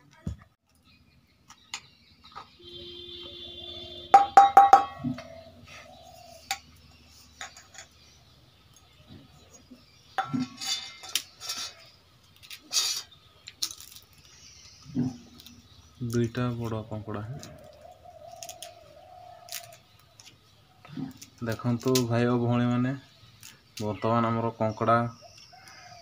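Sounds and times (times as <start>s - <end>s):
metal bowl and plate clinking: 4.1s - 5.3s, 10.2s - 11.9s.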